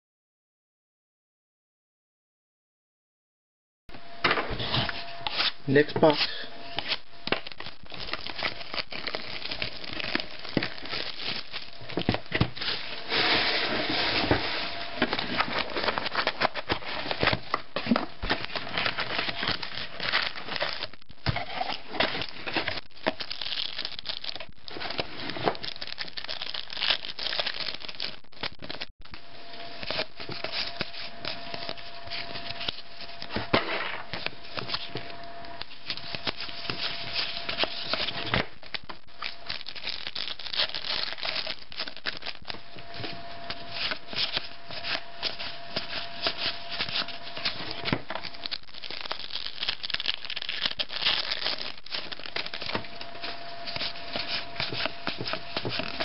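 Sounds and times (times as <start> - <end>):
card packs crinkling and tearing: 4.6 - 56.0.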